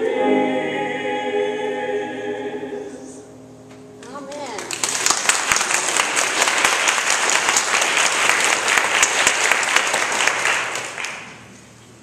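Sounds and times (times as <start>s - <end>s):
congregation applauding: 4.3s - 11.6s.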